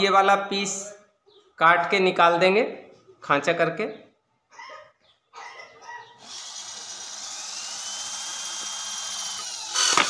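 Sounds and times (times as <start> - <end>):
electric drill boring into wood: 6.2 - 10.0.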